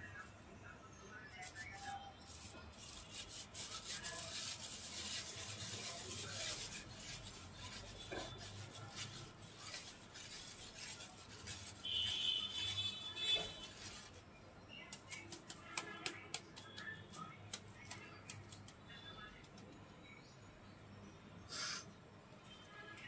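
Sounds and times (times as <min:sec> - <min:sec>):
squeaky scrape: 0:01.3 - 0:14.2
scratchy rasping on metal mesh: 0:01.4 - 0:14.2.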